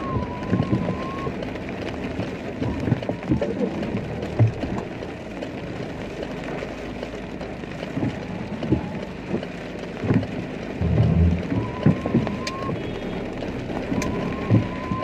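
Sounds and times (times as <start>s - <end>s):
rain heard through car window: 0.0s - 15.0s
dull low thumps: 7.9s - 12.6s, 13.9s - 15.0s.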